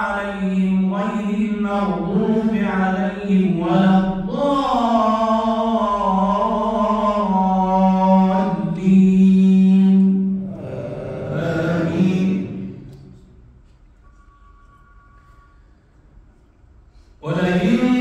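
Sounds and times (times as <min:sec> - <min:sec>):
man chanting melodically: 0:00.0 - 0:13.3, 0:17.2 - 0:18.0.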